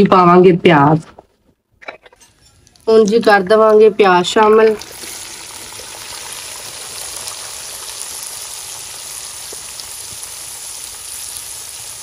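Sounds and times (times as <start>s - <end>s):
onions sizzling in a wok: 2.4s - 12.0s.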